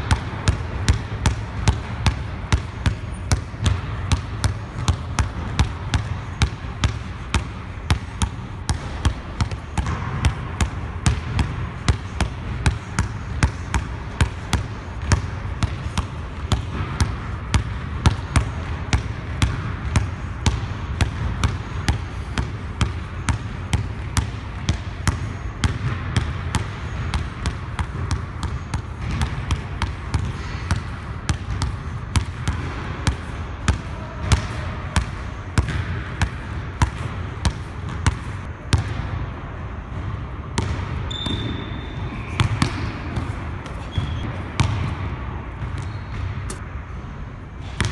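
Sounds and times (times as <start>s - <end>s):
basketball bouncing on hardwood floor: 0.0s - 39.0s, 39.9s - 46.6s.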